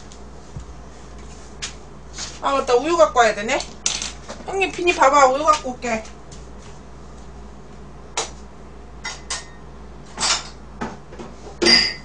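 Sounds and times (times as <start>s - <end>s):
low steady hum: 0.0s - 12.0s
sharp ringing clink: 11.6s - 12.0s.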